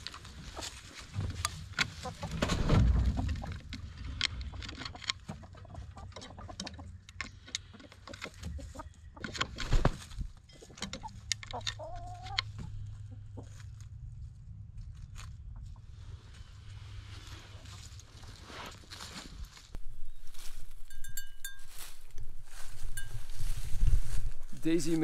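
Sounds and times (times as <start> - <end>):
hens clucking: 1.8 - 2.5, 3.1 - 9.6, 10.6 - 13.8
scratching and pecking in dry leaves: 13.2 - 25.0.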